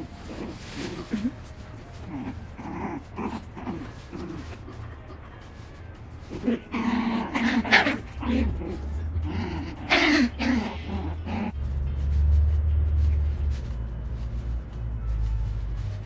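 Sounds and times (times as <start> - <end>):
dogs growling and yipping: 0.0 - 11.6.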